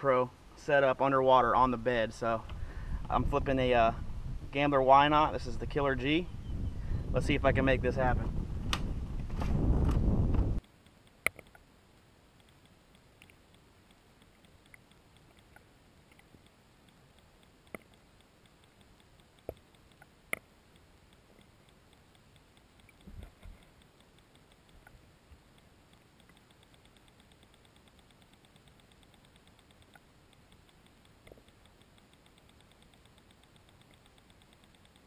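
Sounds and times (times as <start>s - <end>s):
faint even ticking: 10.6s - 35.0s
sharp clicks: 10.6s - 35.0s.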